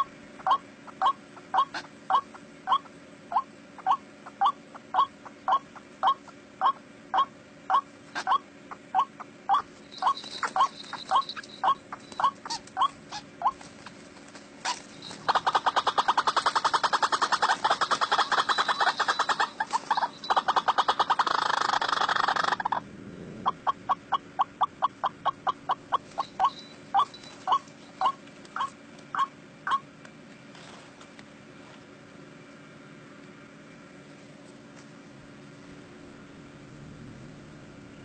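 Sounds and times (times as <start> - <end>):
bird calling: 0.0 - 29.9.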